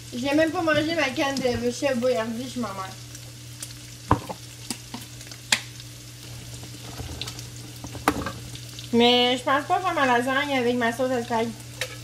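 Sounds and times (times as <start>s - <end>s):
utensils knocking on cookware: 4.1s - 4.4s.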